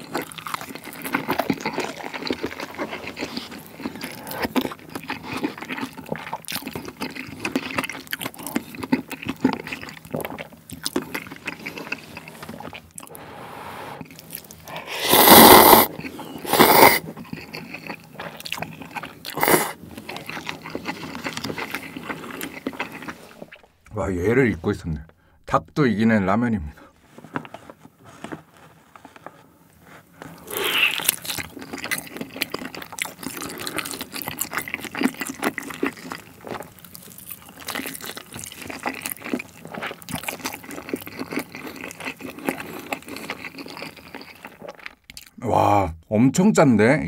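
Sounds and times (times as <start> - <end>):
wet chewing and lip smacking: 0.0 - 13.2, 14.0 - 23.9, 27.2 - 45.4
loud slurps: 13.0 - 17.1, 19.3 - 19.8, 30.4 - 31.2.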